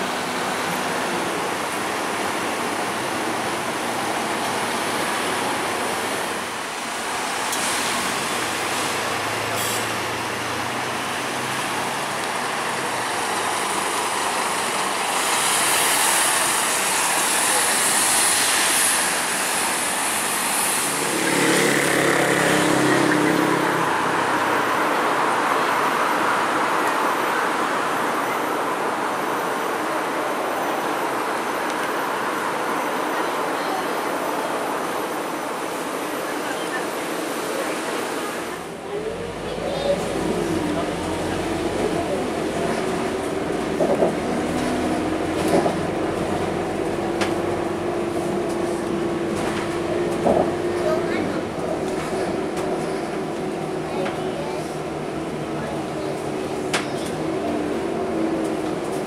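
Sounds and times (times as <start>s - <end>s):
tyre and road hiss: 0.0s - 26.8s
bus engine passing: 0.0s - 33.2s, 34.0s - 59.0s
traffic noise: 0.0s - 59.0s.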